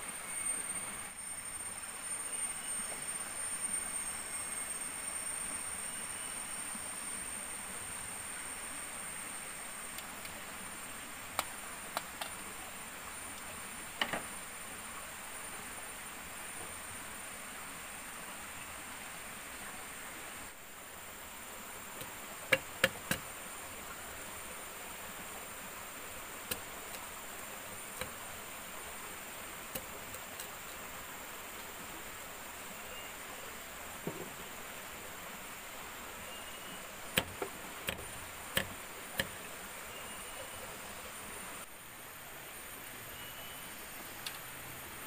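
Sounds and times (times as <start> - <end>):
high insect drone: 0.0 - 45.0
faint ticks: 9.9 - 10.4.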